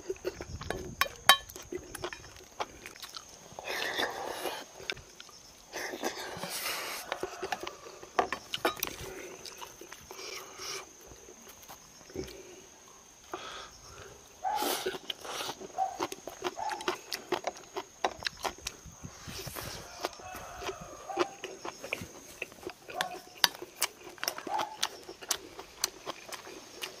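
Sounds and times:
chewing and smacking food: 0.0 - 3.4, 7.0 - 10.3, 14.9 - 18.9, 19.6 - 27.0.

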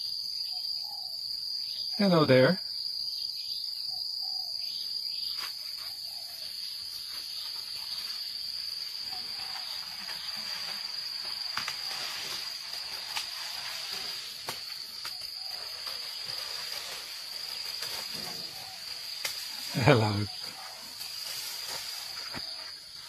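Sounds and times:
insects buzzing: 0.0 - 23.0
faint snaps in vegetation: 11.4 - 11.9, 14.4 - 15.2, 19.2 - 19.5.

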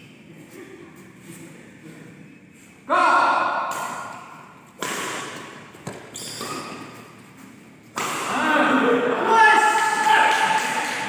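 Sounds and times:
racket hitting shuttlecock: 3.5 - 8.4
person shouting: 8.3 - 10.6.

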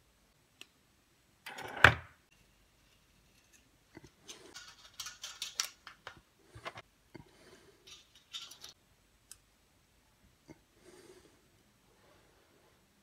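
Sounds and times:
metal tools clicking and scraping wire: 3.3 - 6.8, 7.8 - 8.8.

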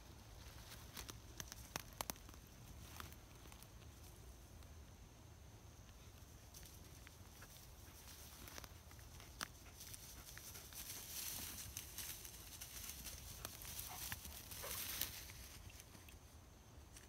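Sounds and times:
footsteps through dry grass: 0.1 - 4.1, 6.5 - 15.9.

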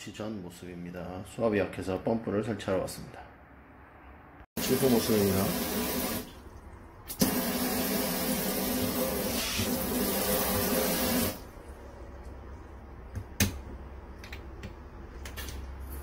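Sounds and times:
faucet spraying water into sink: 4.6 - 6.3, 7.1 - 11.4.

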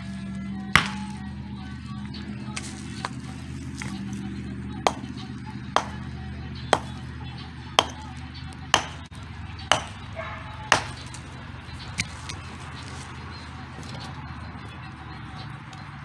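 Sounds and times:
hammer striking rocks: 0.8 - 1.1, 4.9 - 5.2, 5.8 - 6.0, 6.7 - 7.0, 7.8 - 8.1, 8.7 - 9.1, 9.7 - 10.0, 10.7 - 11.1.

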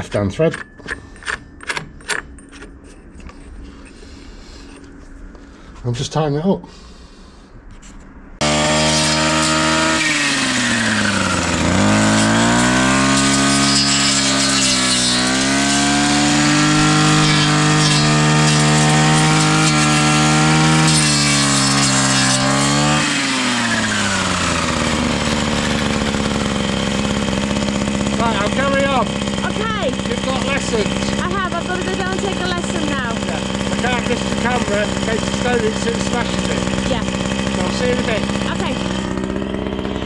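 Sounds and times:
brush cutter engine running: 8.4 - 40.0.

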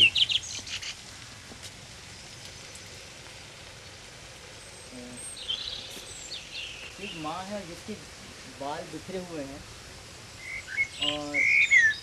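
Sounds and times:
outdoor background hiss: 0.0 - 12.0
faint bird chirps: 4.5 - 7.5, 10.4 - 12.0.

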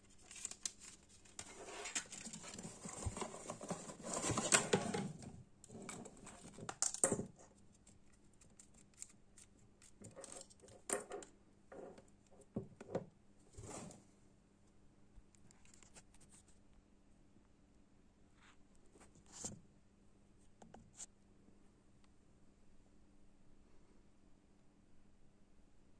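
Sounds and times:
rustling of cardboard box: 1.4 - 5.2.

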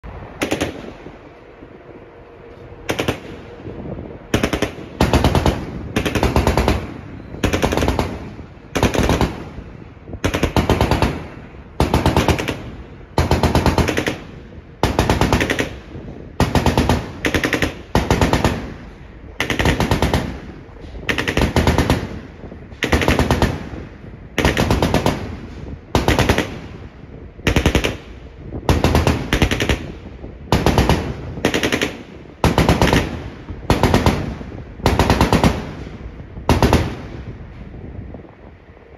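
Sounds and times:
automatic gun firing bursts: 0.4 - 1.0, 2.9 - 3.5, 4.3 - 9.5, 10.2 - 18.7, 19.4 - 20.5, 21.1 - 22.2, 22.8 - 23.7, 24.4 - 25.4, 26.0 - 26.6, 27.4 - 28.1, 28.7 - 35.9, 36.5 - 37.0.

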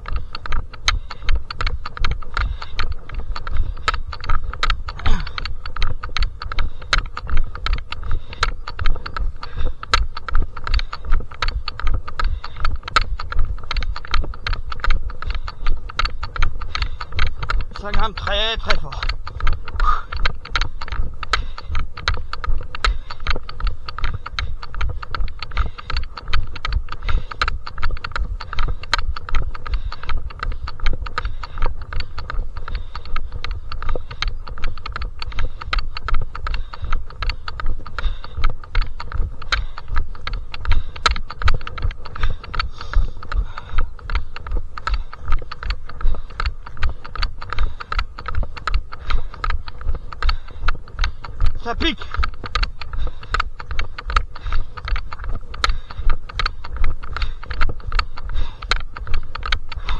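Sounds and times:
running footsteps on trail: 0.0 - 59.9.

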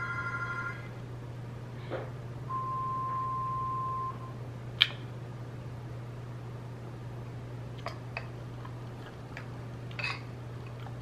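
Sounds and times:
steady low hum: 0.0 - 11.0
metal spoon clinking bowl: 10.0 - 10.3.

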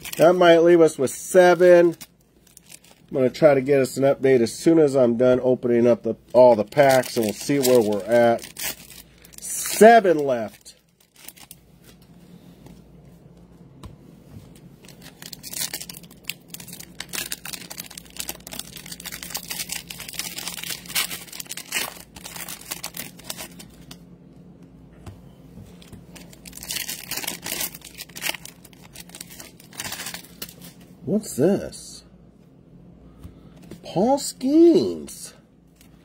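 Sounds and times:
wrappers crinkling and tearing: 0.0 - 3.5, 6.3 - 12.0, 14.8 - 24.0, 25.8 - 30.8.

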